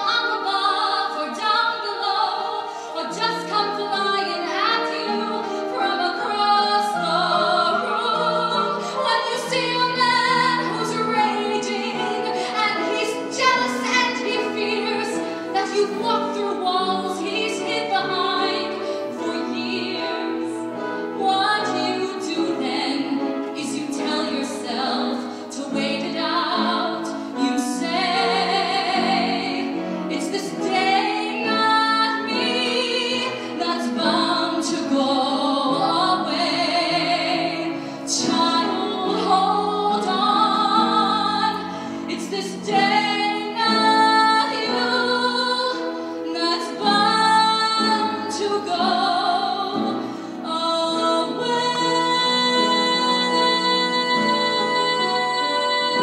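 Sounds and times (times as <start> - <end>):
woman singing operatically: 0.0 - 20.5, 21.2 - 56.0
musical accompaniment: 0.0 - 56.0.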